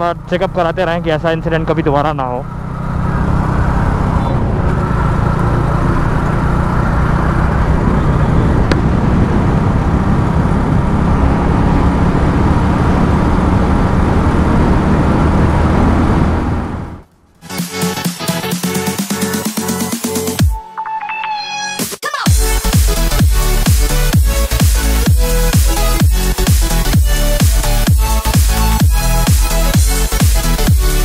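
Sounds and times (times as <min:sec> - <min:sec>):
motorcycle engine at speed: 0:00.0 - 0:17.4
road noise: 0:00.0 - 0:20.4, 0:22.4 - 0:31.0.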